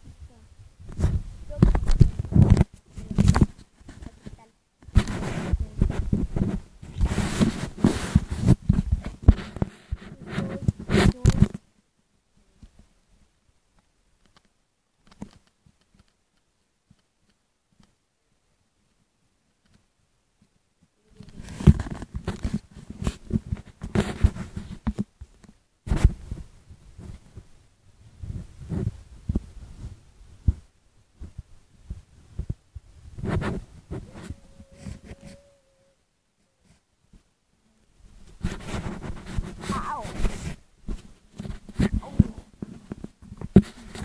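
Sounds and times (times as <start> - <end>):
phone mic rubbing and scraping: 0.8 - 11.6, 21.2 - 25.1, 33.1 - 35.6, 38.3 - 44.0.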